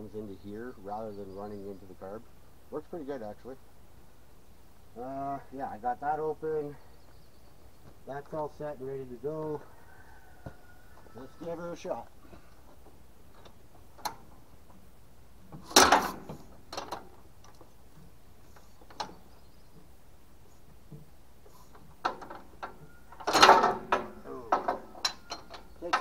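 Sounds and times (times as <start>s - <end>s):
metallic clanks from hand-cranking: 15.6s - 17.1s, 22.0s - 26.0s.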